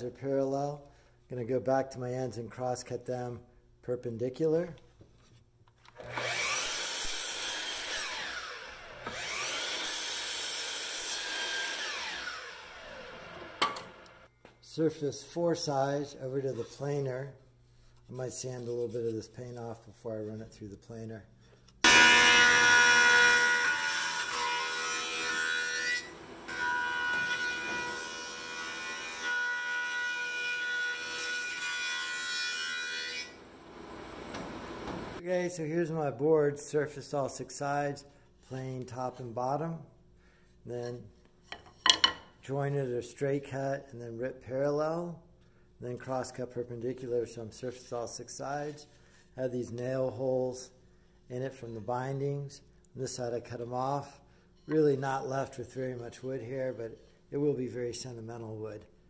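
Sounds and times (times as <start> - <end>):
miter saw motor whining: 6.0 - 6.8, 7.8 - 9.8, 11.7 - 14.2
saw blade cutting wood: 6.0 - 14.1, 21.8 - 35.2
thickness planer whining: 6.0 - 14.2, 21.9 - 35.2.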